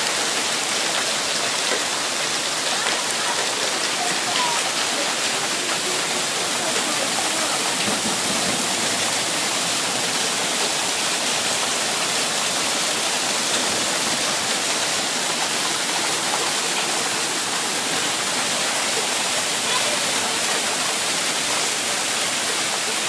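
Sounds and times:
heavy hail and rain falling: 0:00.0 - 0:23.0.

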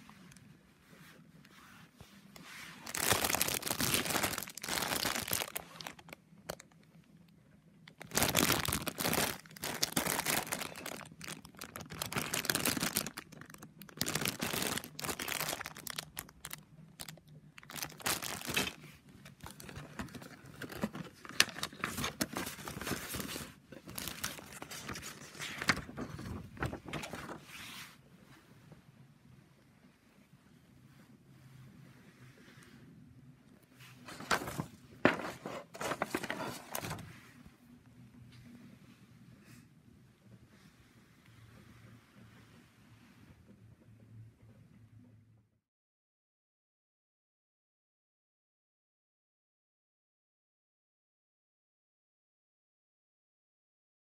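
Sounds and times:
plastic bags crinkling: 0:02.8 - 0:06.9, 0:07.8 - 0:27.4, 0:34.0 - 0:37.1.

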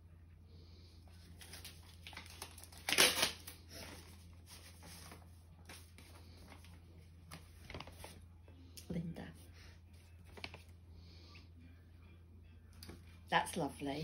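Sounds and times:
paper rustling: 0:01.2 - 0:08.2, 0:09.9 - 0:10.7
paper tearing: 0:01.4 - 0:04.0.

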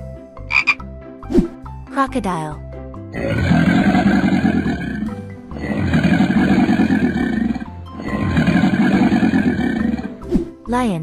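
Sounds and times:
children's background music: 0:00.0 - 0:11.0
cartoon crocodile roar: 0:03.1 - 0:10.2.

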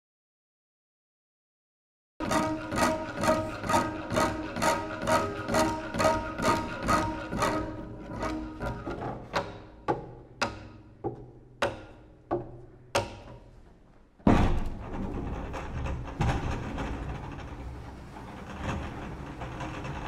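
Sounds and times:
loud thud: 0:14.2 - 0:15.3
rough rumbling noise: 0:14.3 - 0:20.0.

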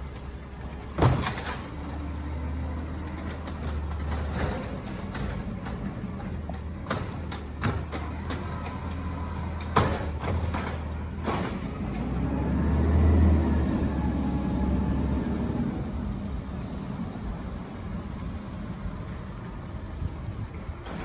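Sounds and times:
truck engine low rumble: 0:00.0 - 0:21.0
knocks of cart and loader arm: 0:06.5 - 0:08.9, 0:09.5 - 0:11.8.

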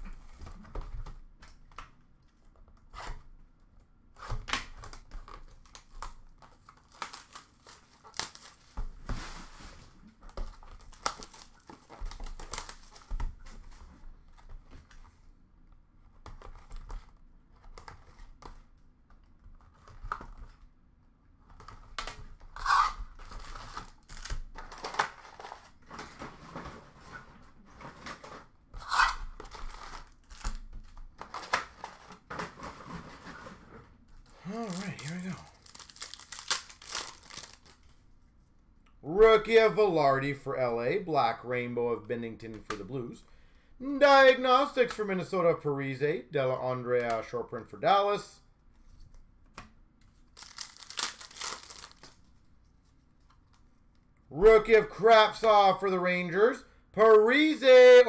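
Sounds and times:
plastic wrap tearing and crinkling: 0:04.2 - 0:08.8, 0:10.6 - 0:13.2, 0:21.6 - 0:26.2, 0:28.8 - 0:33.0, 0:34.2 - 0:38.0, 0:50.2 - 0:52.3.

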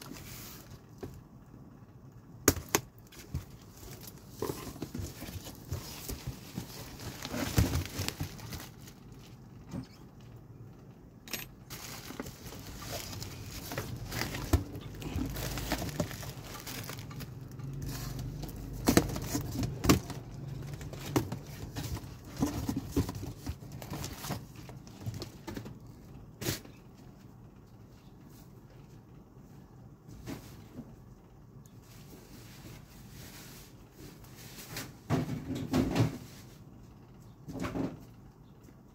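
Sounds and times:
cardboard rustling: 0:02.5 - 0:09.4, 0:11.7 - 0:25.8
plastic crinkling: 0:02.6 - 0:09.5, 0:11.6 - 0:25.6.

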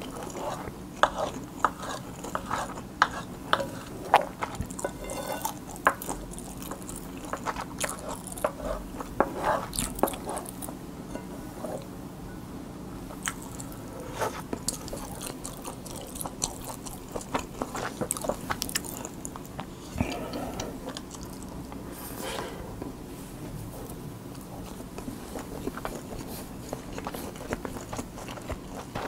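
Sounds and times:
close chewing and mouth sounds: 0:00.0 - 0:10.8, 0:13.1 - 0:22.0, 0:23.8 - 0:29.0
wooden spoon scraping a plate: 0:00.3 - 0:05.6, 0:07.9 - 0:11.9.

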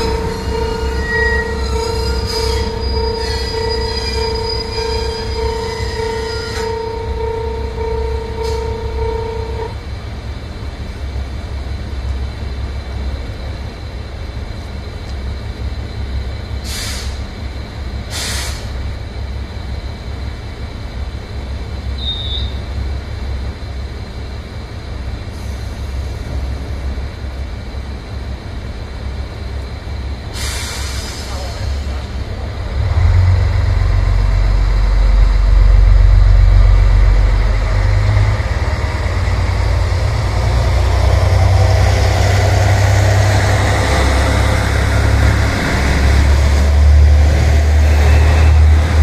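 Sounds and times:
steady squeal: 0:00.0 - 0:09.8, 0:21.9 - 0:22.7, 0:30.4 - 0:49.0
compressed air hisses: 0:16.6 - 0:17.3, 0:18.1 - 0:18.8, 0:30.4 - 0:32.0.

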